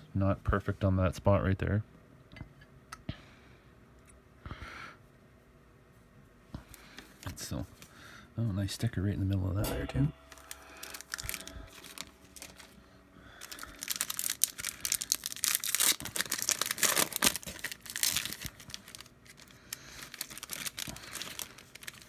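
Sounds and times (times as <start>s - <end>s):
plastic packaging crinkling: 10.2s - 22.0s.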